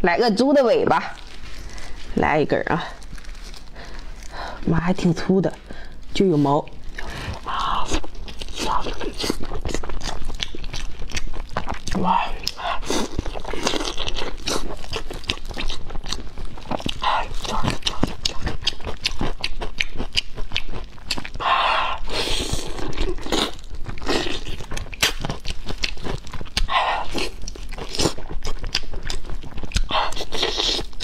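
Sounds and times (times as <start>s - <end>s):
close-miked chewing and biting: 1.0s - 31.0s
wet mouth clicks and smacks: 17.8s - 21.4s, 27.4s - 31.0s.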